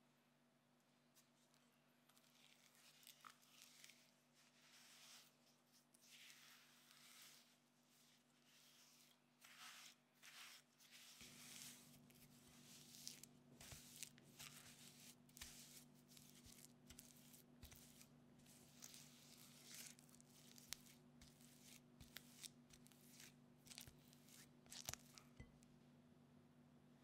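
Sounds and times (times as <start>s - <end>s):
spatula scraping dough in bowl: 6.0s - 25.6s.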